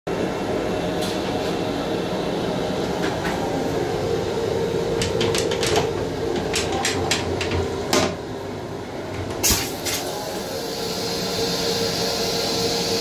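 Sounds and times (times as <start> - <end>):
train running noise and hum: 0.2 - 13.0.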